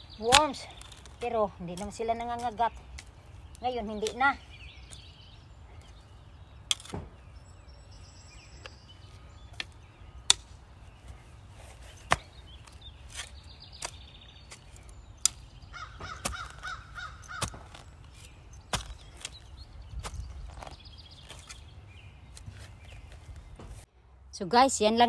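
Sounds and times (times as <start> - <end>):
birds calling: 0.0 - 23.9
spade chopping into soil: 0.2 - 3.1, 6.7 - 7.1, 9.6 - 10.6, 12.0 - 21.7.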